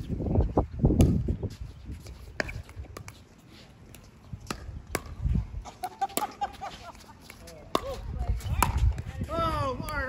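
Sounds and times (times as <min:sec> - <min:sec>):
wind buffeting microphone: 0:00.0 - 0:03.1, 0:04.2 - 0:05.8, 0:07.7 - 0:10.0.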